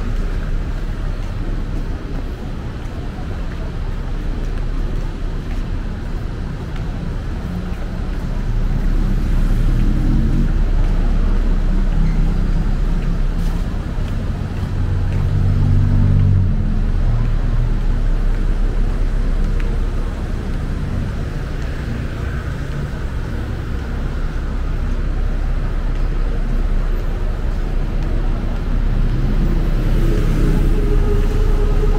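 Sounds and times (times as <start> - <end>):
rumble of passing cars: 0.0 - 31.9
vehicle engine passing close: 28.2 - 31.9.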